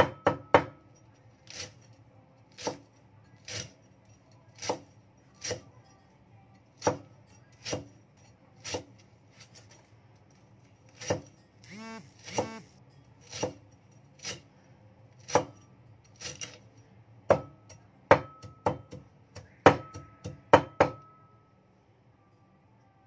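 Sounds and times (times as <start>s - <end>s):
cleaver chopping on wooden board: 12.2s - 12.6s.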